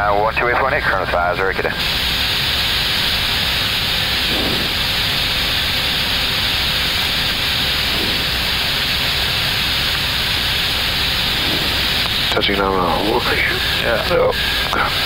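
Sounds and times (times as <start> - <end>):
cockpit airflow and ventilation hiss: 0.0 - 15.0.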